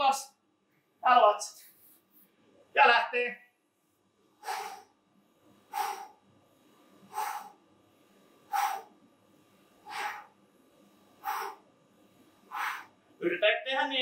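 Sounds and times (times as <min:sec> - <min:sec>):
person exhaling hard: 0:04.4 - 0:04.9, 0:05.7 - 0:06.2, 0:07.1 - 0:07.6, 0:09.8 - 0:10.3.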